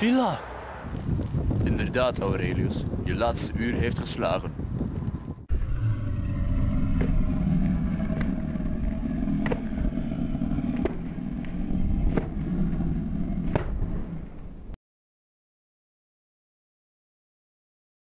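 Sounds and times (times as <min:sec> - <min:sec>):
low rumbling wind noise: 0:00.4 - 0:14.8.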